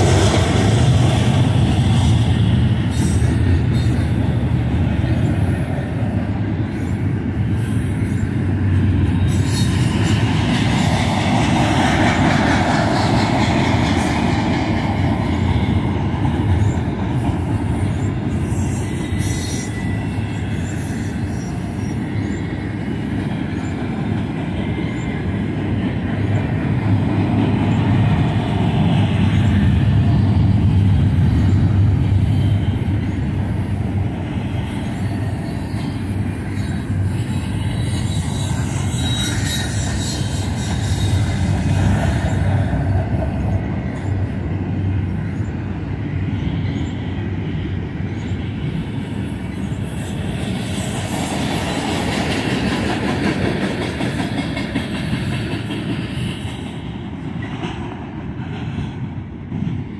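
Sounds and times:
train wheels rumbling on rail: 0.0s - 59.9s
faint wheel squeal: 35.4s - 41.5s.

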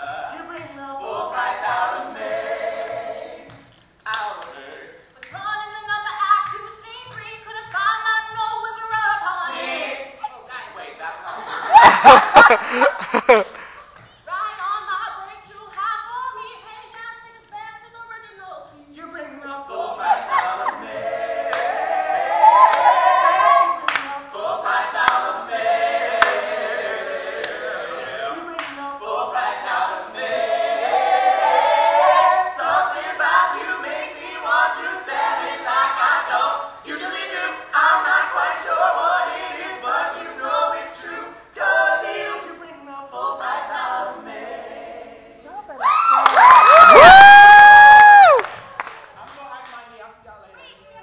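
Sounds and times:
mixed voices singing a cappella: 0.0s - 6.1s, 7.5s - 13.7s, 19.0s - 45.8s.

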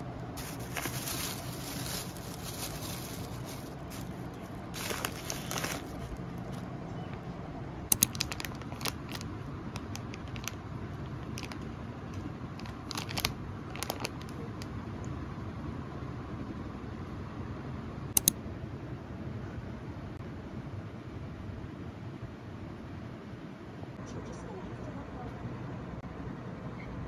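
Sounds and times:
plastic bag rustling: 0.0s - 6.6s, 8.1s - 10.6s, 11.2s - 11.6s, 12.5s - 14.6s
plastic wrappers crackling: 0.3s - 6.6s, 8.0s - 10.6s, 11.2s - 11.7s, 12.5s - 14.6s.

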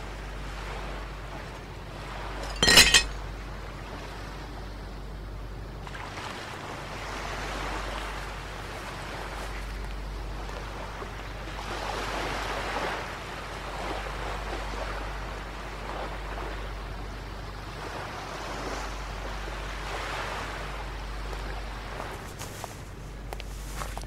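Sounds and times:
sea surf breaking on beach: 10.5s - 15.0s.

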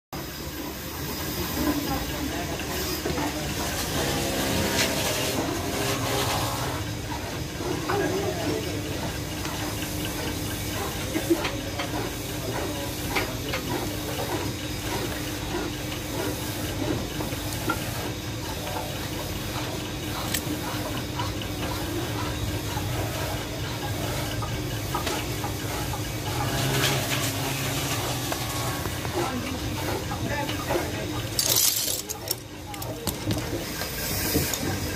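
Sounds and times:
steady hum and hiss: 13.9s - 34.9s.

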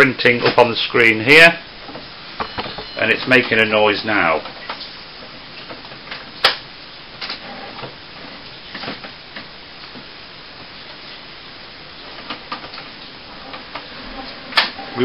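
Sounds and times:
printer whirring: 7.2s - 9.0s, 12.0s - 15.0s
printer clicks: 14.5s - 15.0s.

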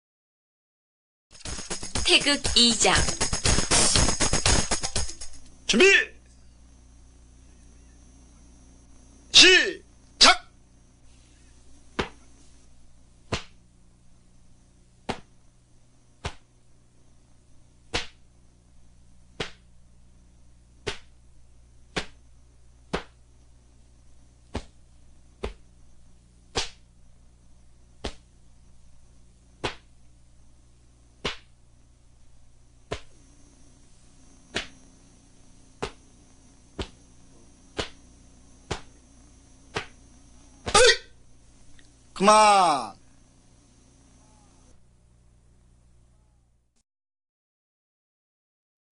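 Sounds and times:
low steady hum: 1.4s - 46.7s
uniform fabric snapping: 29.6s - 29.9s, 37.8s - 38.0s, 38.7s - 38.9s, 39.7s - 39.9s.

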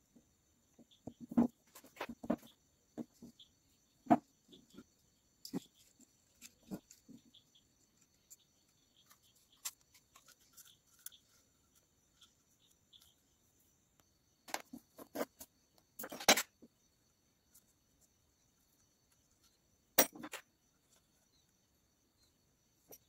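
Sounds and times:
plastic parts knocking and clattering: 0.8s - 3.4s.

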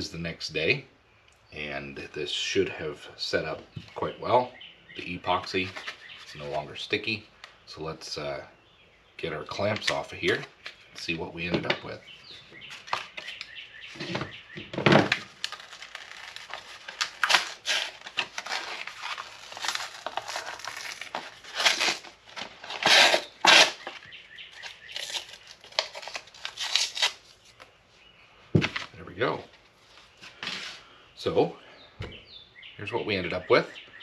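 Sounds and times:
paper ripping and crinkling: 15.0s - 27.6s.

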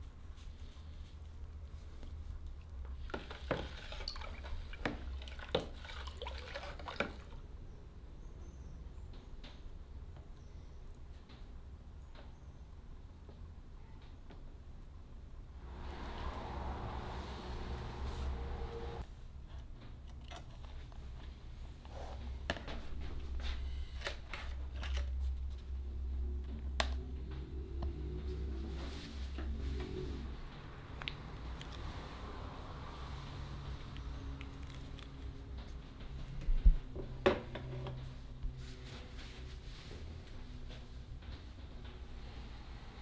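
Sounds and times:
spoon stirring water: 3.0s - 7.4s
steady low hum: 15.3s - 19.5s.

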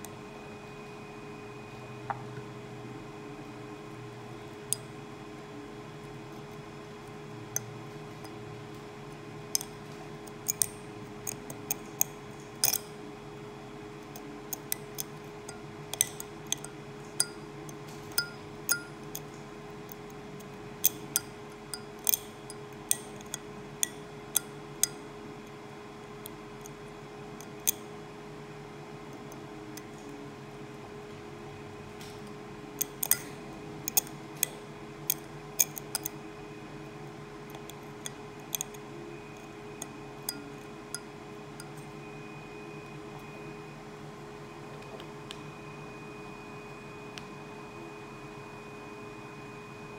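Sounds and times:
faint steady hum: 0.0s - 49.9s
metal tool clicking on tooth: 9.6s - 12.9s, 14.1s - 19.3s, 20.8s - 25.0s, 32.8s - 36.2s, 37.5s - 38.8s.

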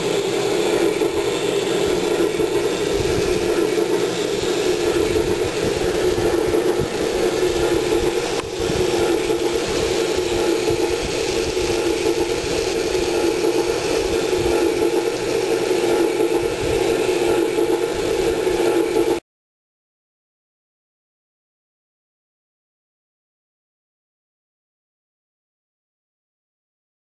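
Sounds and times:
model train running on track: 0.0s - 19.2s.

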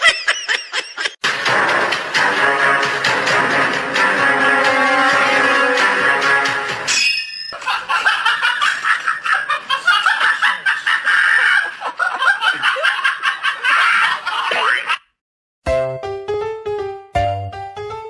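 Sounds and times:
people laughing: 0.0s - 1.2s, 7.6s - 15.0s.

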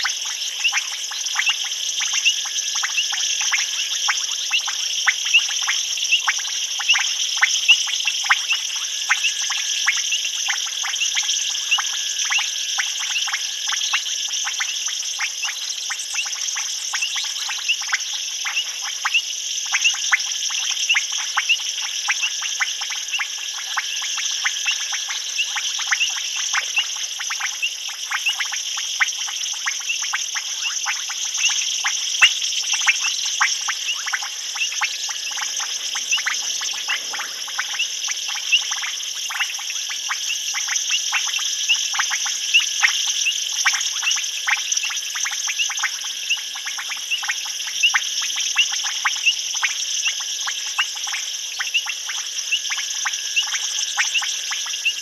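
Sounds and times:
frogs calling: 0.0s - 55.0s
high-pitched insect trill: 0.0s - 55.0s.

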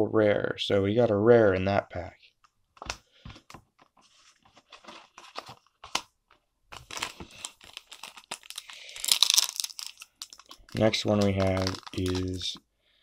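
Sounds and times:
foil wrapper crinkling: 6.7s - 12.6s
cards clicking: 7.6s - 12.6s.

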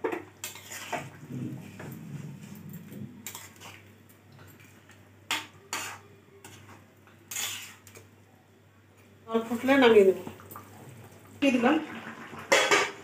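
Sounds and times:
metal spatula scraping metal pan: 0.4s - 1.2s, 3.2s - 3.8s, 5.7s - 8.0s.

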